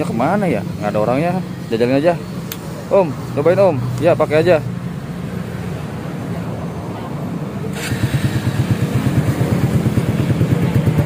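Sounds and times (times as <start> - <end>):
motorcycle engine starting and idling: 7.6 - 11.0.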